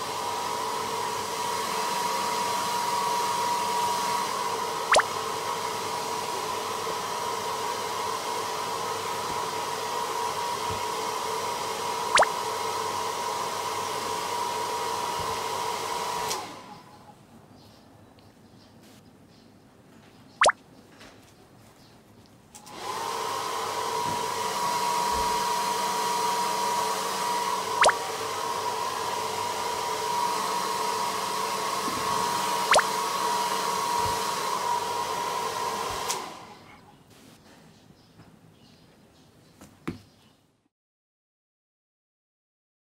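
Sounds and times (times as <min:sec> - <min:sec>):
hair dryer running: 0:00.0 - 0:16.7, 0:22.6 - 0:36.6.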